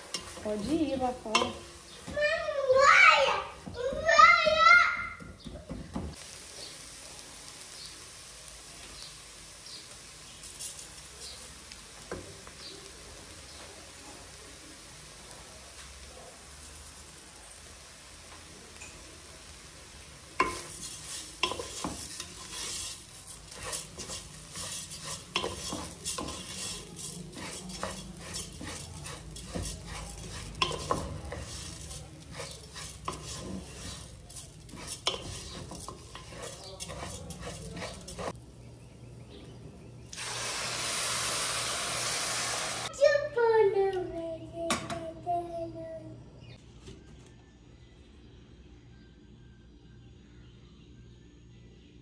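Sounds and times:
wooden spoon scraping a pot: 0.0 - 2.3, 10.4 - 11.5, 20.4 - 38.4
faint sizzle: 0.0 - 47.9
water poured into hot pot: 40.1 - 42.9.

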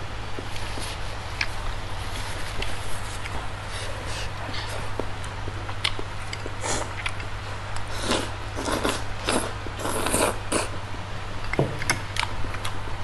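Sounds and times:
steady low hum: 0.0 - 13.0
chewing noises: 0.4 - 10.9
slurping noodles: 7.9 - 10.8.

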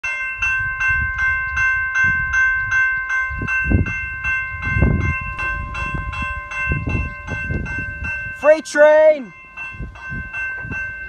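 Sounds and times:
level crossing bell ringing: 0.0 - 11.0.

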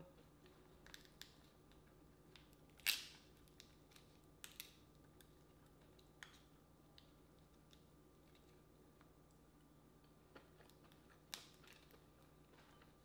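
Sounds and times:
crab shell cracking: 0.8 - 6.5, 10.6 - 12.3.

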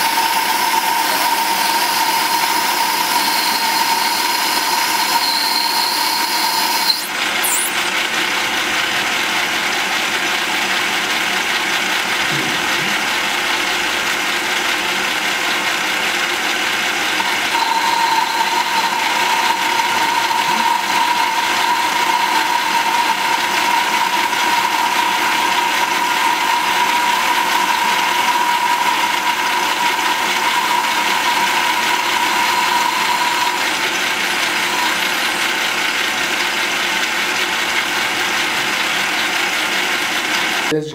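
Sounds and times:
steady high whine: 0.0 - 8.1, 17.2 - 36.2
metal lathe running: 0.0 - 40.7.

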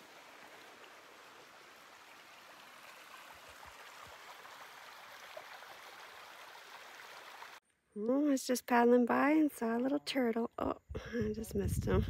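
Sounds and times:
faint rushing waterfall: 0.0 - 7.6.

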